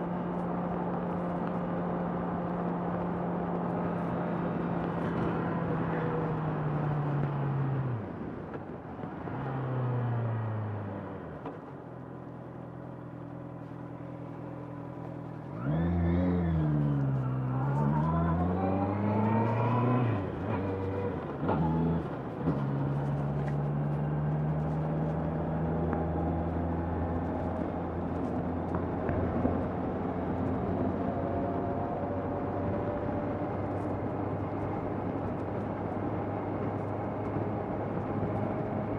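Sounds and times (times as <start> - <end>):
motorcycle engine revving: 15.4 - 27.4.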